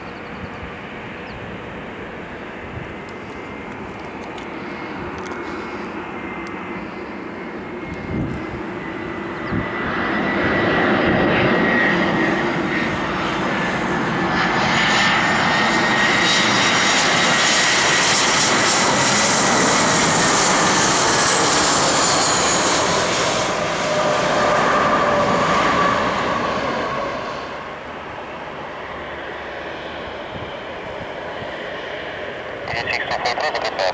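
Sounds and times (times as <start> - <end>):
high fan whine: 0.0 - 9.8
jet engine rumble: 0.0 - 33.9.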